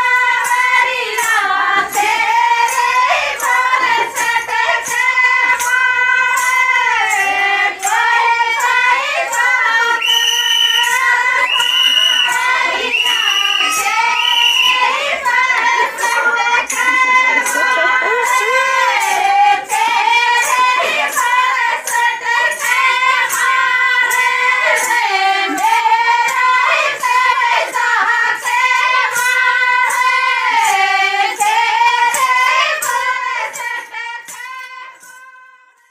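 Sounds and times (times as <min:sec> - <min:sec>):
high-pitched voice singing: 0:10.8 - 0:14.9.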